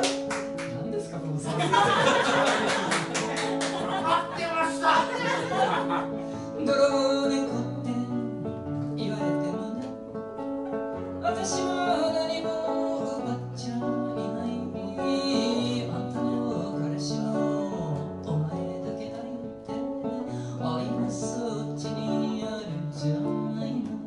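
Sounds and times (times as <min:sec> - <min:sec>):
acoustic guitar: 0:00.0 - 0:24.0
woman singing: 0:03.8 - 0:05.8, 0:06.6 - 0:10.0, 0:11.2 - 0:24.0.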